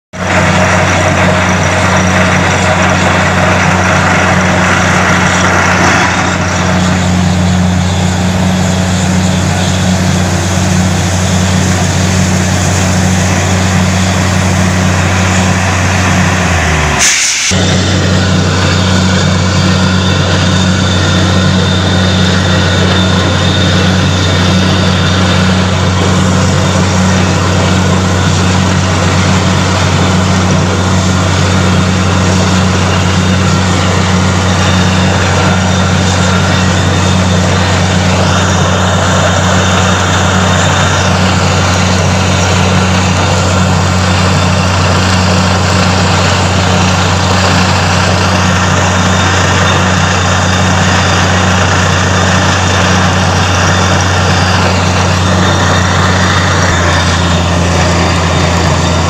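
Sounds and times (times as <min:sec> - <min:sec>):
drilling rig engine drone: 0:00.1 - 0:59.0
hiss: 0:17.0 - 0:17.5.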